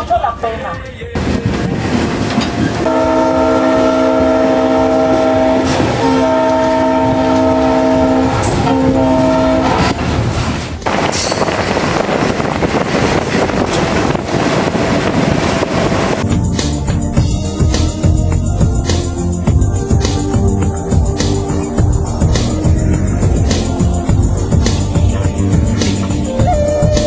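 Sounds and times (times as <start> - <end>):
train rolling on rails: 0.0 - 27.0
train air horn blasts: 2.8 - 9.9, 26.3 - 27.0.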